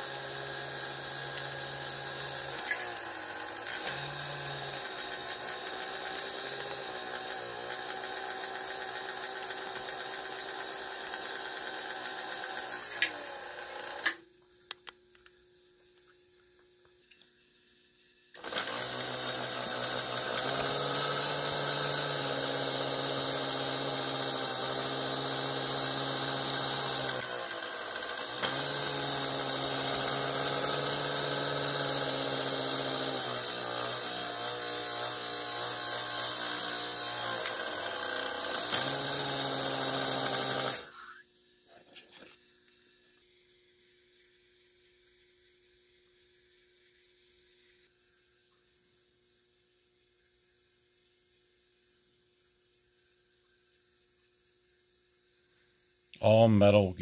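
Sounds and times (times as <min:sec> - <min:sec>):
toy motor and gears whirring: 0:00.0 - 0:14.2, 0:18.3 - 0:42.5.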